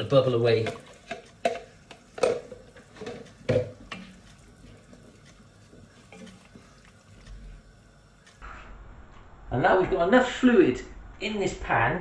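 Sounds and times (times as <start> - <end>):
wooden spoon knocking on pot: 0.6 - 4.2.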